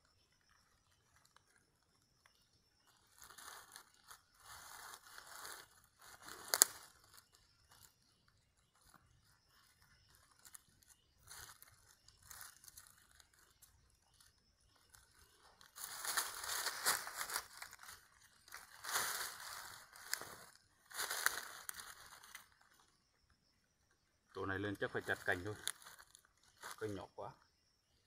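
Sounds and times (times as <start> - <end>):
dry leaves crackling and rustling: 2.9 - 8.0, 8.7 - 22.9, 25.0 - 27.0.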